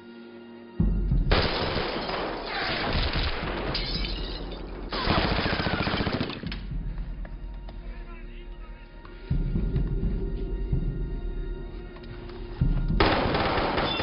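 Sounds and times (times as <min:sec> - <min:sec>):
automatic gunfire bursts: 0:04.9 - 0:06.4.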